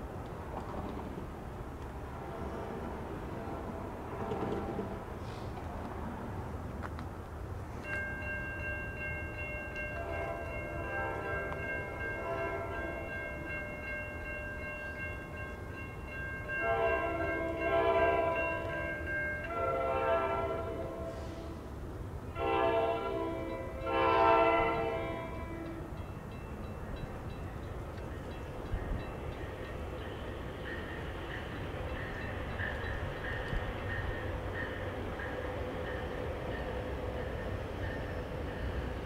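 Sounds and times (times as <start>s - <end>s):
train horn blasts: 2.2s - 5.1s, 10.0s - 13.0s, 16.6s - 18.4s, 19.5s - 21.7s, 22.3s - 25.9s.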